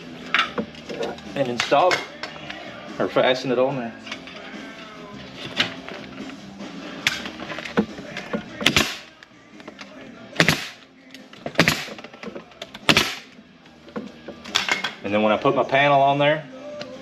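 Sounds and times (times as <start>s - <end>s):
pneumatic stapler firing: 8.6s - 9.0s, 10.4s - 10.8s, 11.5s - 12.0s, 12.8s - 13.3s.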